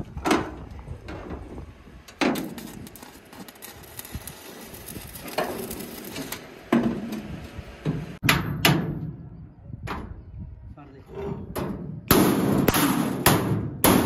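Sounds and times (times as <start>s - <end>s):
metal knocks and clanks: 7.8s - 9.3s.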